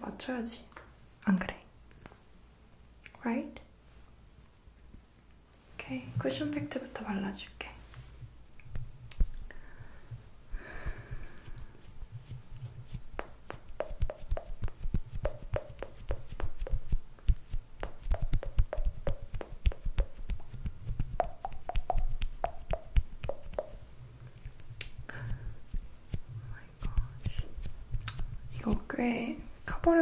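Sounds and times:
cushion puff patting: 12.2s - 23.8s.

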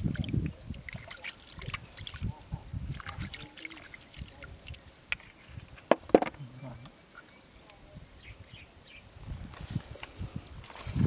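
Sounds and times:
mud and water squelching: 0.0s - 5.9s.

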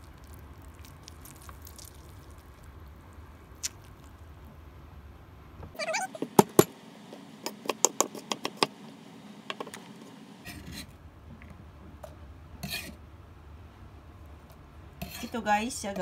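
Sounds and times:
knife scraping board: 12.6s - 13.0s, 15.0s - 15.4s.

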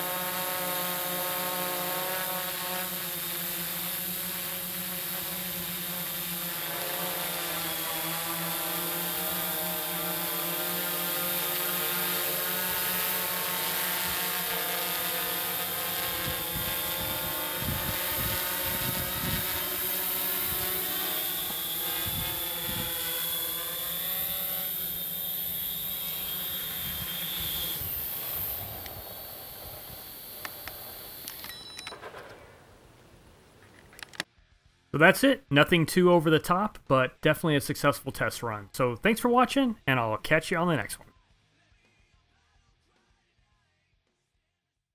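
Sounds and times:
drone motors buzzing: 0.0s - 34.2s.

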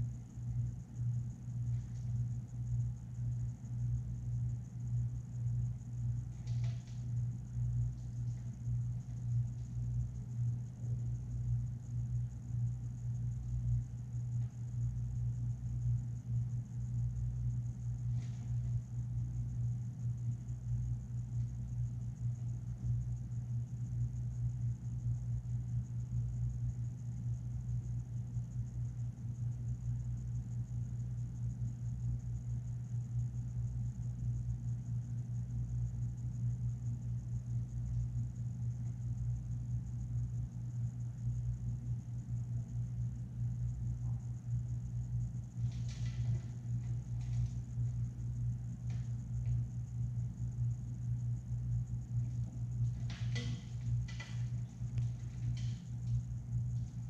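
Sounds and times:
faint high whine: 0.0s - 57.0s
low machine hum: 0.0s - 57.0s.

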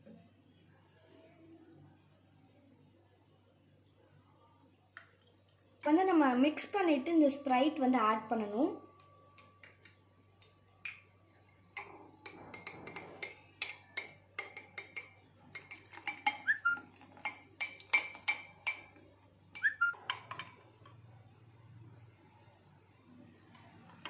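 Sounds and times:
metal spoon clinking against glass: 11.8s - 18.9s.

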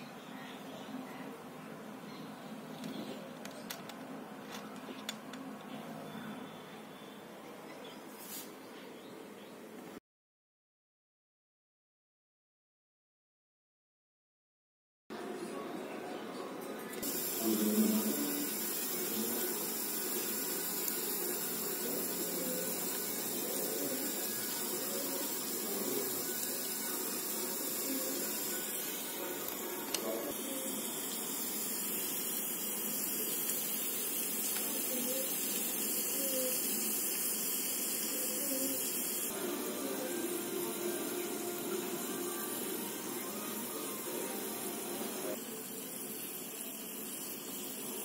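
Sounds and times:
hot oil sizzling and bubbling: 17.0s - 48.0s.

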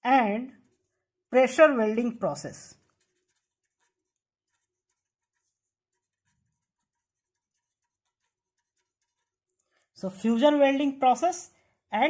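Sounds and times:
marker scratching on paper: 0.4s - 9.8s.

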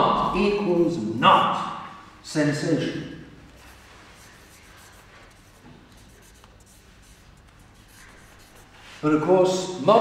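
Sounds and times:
marker writing on paper: 3.5s - 9.0s.

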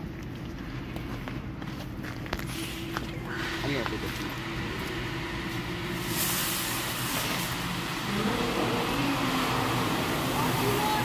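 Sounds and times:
low machinery hum: 0.0s - 11.0s
water jets hissing: 2.4s - 11.0s.

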